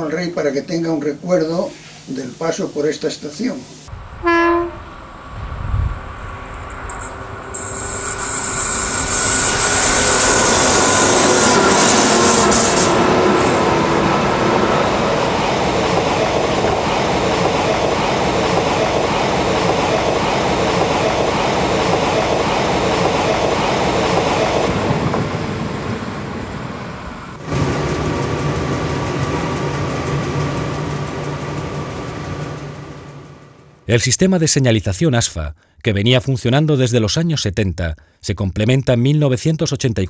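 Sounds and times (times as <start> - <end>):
train running on rails: 3.6 - 33.9.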